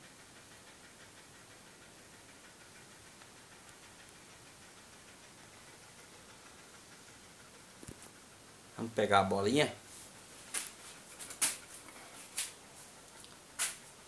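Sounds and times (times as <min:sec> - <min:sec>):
faint steady hiss: 0:00.0 - 0:14.0
faint ticks: 0:02.7 - 0:04.6.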